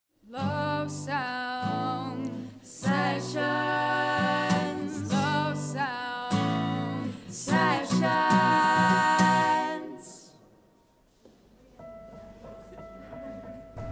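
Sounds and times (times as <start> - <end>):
woman singing with vibrato: 0.3 - 10.4.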